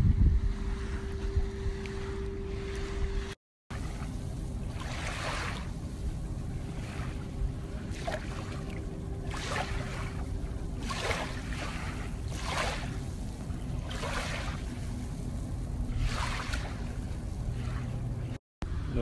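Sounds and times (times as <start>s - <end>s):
wind rumble on microphone: 0.0s - 19.0s
wavelets lapping on shore: 0.2s - 19.0s.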